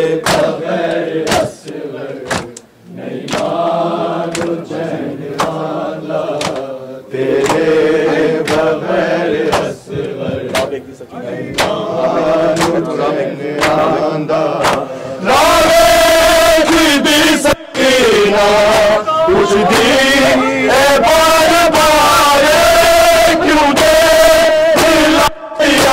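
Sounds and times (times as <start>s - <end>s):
men chanting in unison: 0.0s - 25.9s
hands striking chests: 2.3s - 2.6s.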